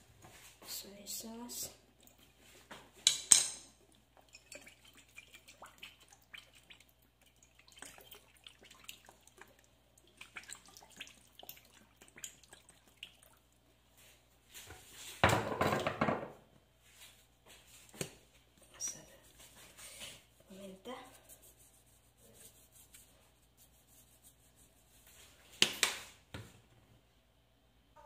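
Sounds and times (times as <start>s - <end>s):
small drips and splashes: 1.8s - 14.2s.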